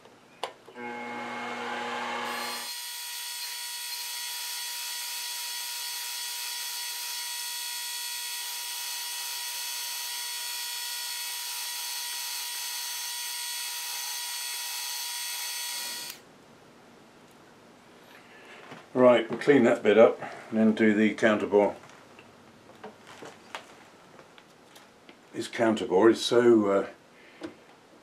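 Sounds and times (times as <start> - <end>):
milling machine drilling whine: 0.7 - 16.2.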